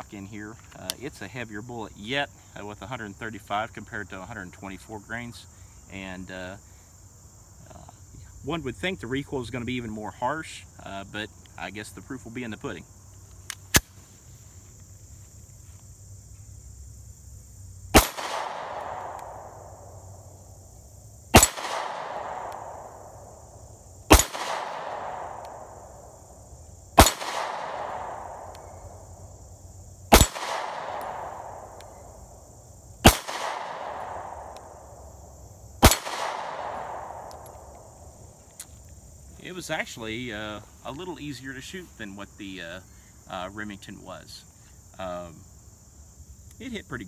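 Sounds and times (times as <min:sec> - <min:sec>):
crickets trilling: 0:00.0 - 0:47.0
pistol shots with echo: 0:18.0 - 0:19.5, 0:21.3 - 0:23.2, 0:24.1 - 0:25.7, 0:27.0 - 0:28.5, 0:30.1 - 0:31.8, 0:33.0 - 0:34.6, 0:35.8 - 0:37.5.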